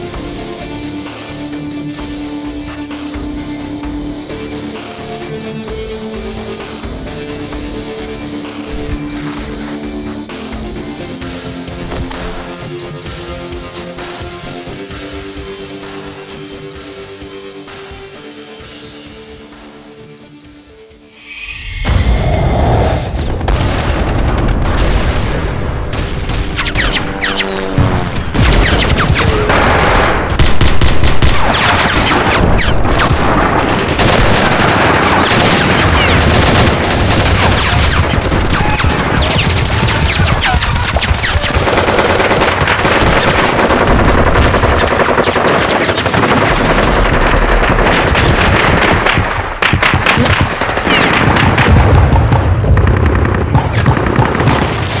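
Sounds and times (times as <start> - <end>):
automatic gunfire bursts: 34.0 - 51.7.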